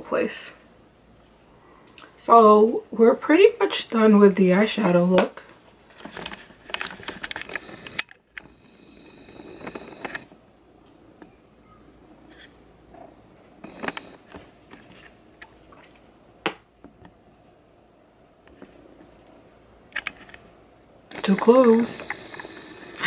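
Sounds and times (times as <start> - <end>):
faint high steady tone: 7.5 - 16.4, 20.4 - 23.0.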